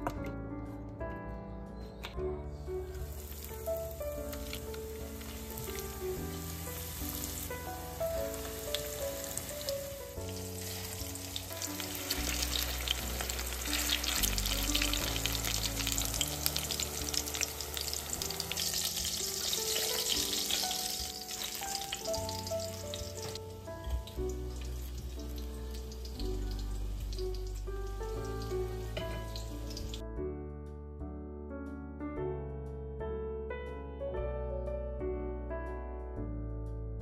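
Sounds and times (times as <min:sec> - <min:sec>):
background music: 0:00.0 - 0:37.0
patties sizzling in oil: 0:02.9 - 0:30.0.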